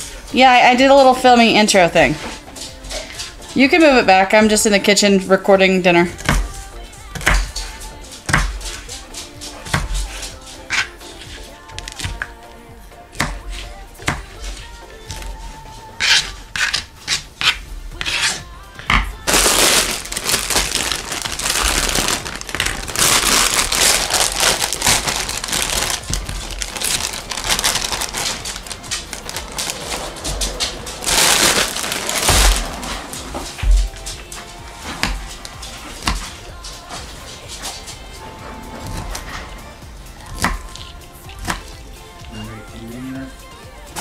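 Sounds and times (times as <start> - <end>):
knife chopping on plastic board: 8.3 - 8.6, 13.2 - 13.4, 40.3 - 41.7
plastic bag crinkling: 19.2 - 34.3.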